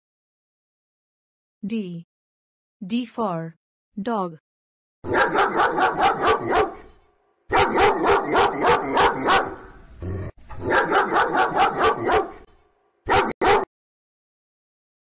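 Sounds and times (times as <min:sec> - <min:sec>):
dog barking: 0:05.0 - 0:09.8, 0:10.6 - 0:13.7.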